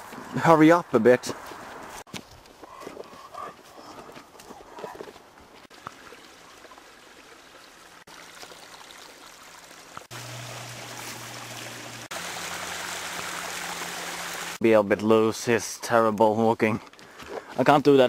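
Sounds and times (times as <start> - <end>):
brook trickling: 5.6 - 14.6.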